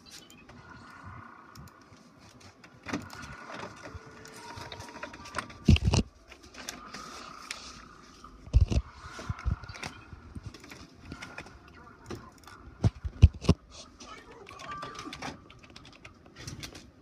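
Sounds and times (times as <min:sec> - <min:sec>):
printer motors whining: 0:00.0 - 0:13.5.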